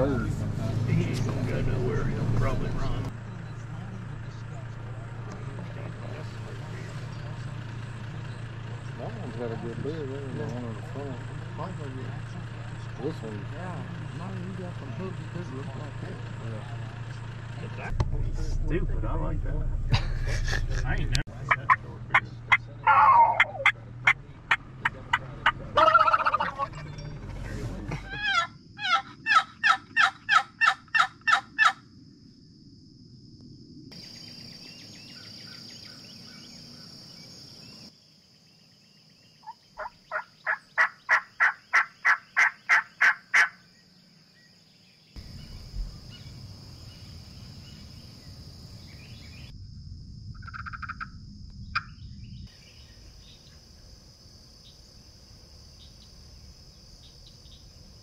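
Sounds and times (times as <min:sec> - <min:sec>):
turkey yelps: 0:22.5 - 0:24.6, 0:25.4 - 0:26.8, 0:28.1 - 0:31.8, 0:39.4 - 0:43.6
high insect trill: 0:26.5 - 0:58.0.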